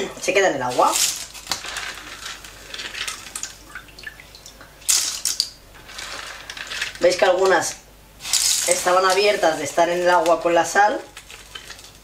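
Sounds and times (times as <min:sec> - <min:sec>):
water dripping and splashing: 0:03.1 - 0:05.6.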